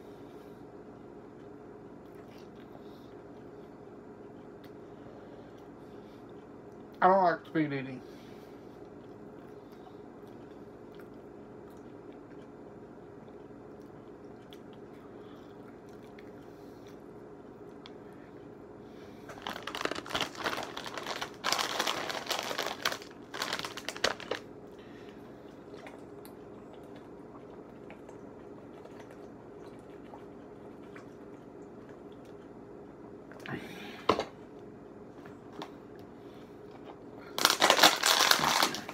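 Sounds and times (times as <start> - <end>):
low background hum: 0.0 - 38.9
crunching: 19.3 - 24.5
foil chip bag crinkling: 19.3 - 24.5, 37.3 - 38.9.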